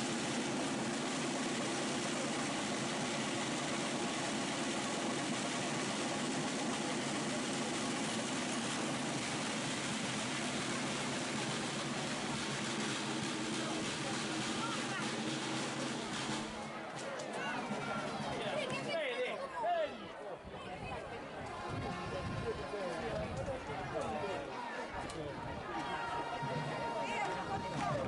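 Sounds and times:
murmur of outdoor crowd: 0.0 - 28.0.

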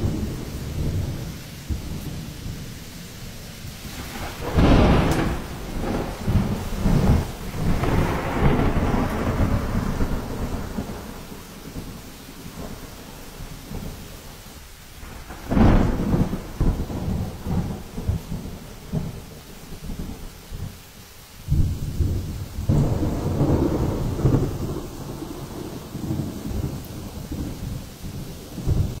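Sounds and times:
wind gusts buffeting microphone: 0.0 - 14.2
driving rain: 0.0 - 29.0
hurricane wind: 0.0 - 29.0.

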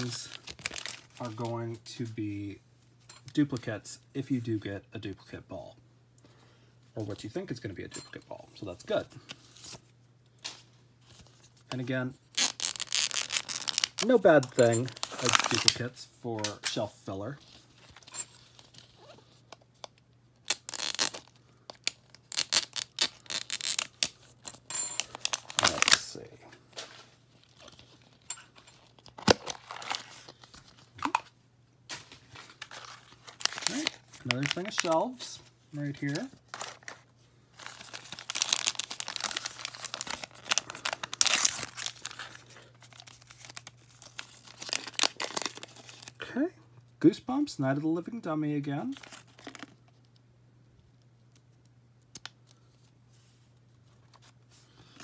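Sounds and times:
sticker seal tearing and rustling: 12.3 - 15.8, 20.4 - 26.0, 37.6 - 42.3, 42.9 - 46.1.

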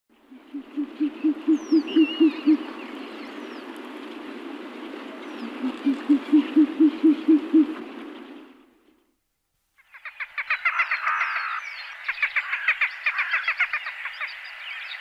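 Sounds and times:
owl hooting: 0.3 - 2.8, 5.4 - 8.0.

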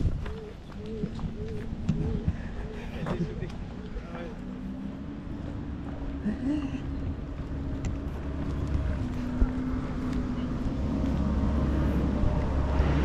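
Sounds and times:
low rumble: 3.2 - 13.0.

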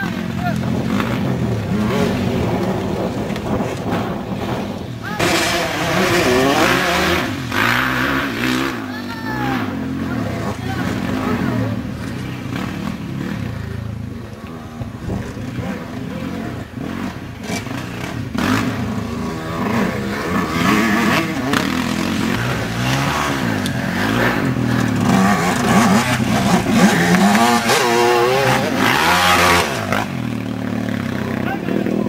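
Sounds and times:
dirt bike engines revving: 0.0 - 32.0.

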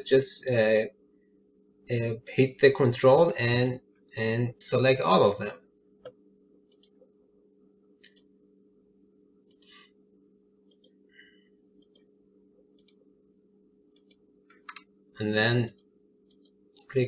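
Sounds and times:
low steady hum: 0.0 - 17.0
computer mouse clicks: 6.0 - 7.0, 8.0 - 8.3, 9.4 - 9.8, 10.7 - 11.0, 11.8 - 12.1, 12.8 - 13.0, 13.9 - 14.9, 15.7 - 16.9.

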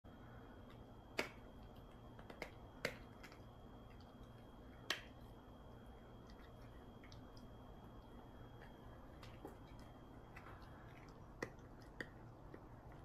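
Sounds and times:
dog teeth cracking on chew: 1.2 - 4.2, 9.2 - 13.0.

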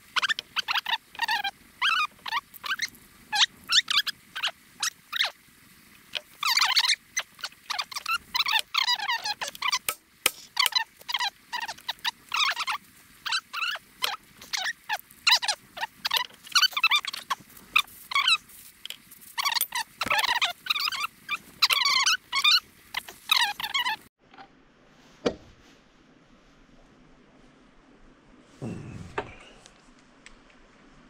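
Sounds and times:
small animal squeaky calls: 0.0 - 5.4, 6.4 - 10.0, 10.6 - 18.5, 19.4 - 24.1.

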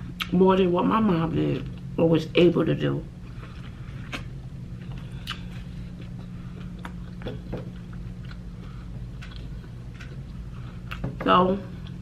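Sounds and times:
low hum: 0.0 - 12.0
person chewing noodles: 3.2 - 11.0
wet mouth sounds: 4.9 - 8.5.

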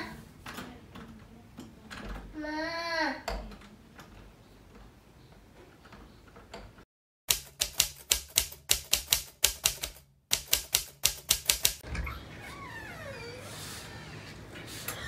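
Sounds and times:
typewriter keystrokes: 7.3 - 11.8.

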